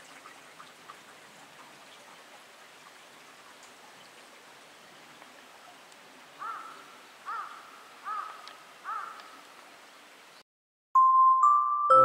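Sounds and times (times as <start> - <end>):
running water hiss: 0.0 - 10.4
bird calling: 6.4 - 9.4.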